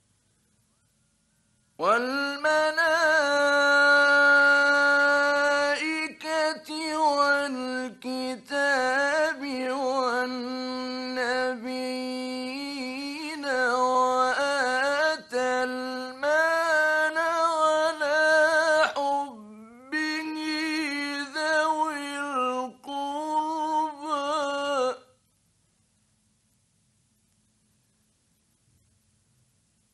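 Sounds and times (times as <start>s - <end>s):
man chanting melodically: 1.8s - 25.1s.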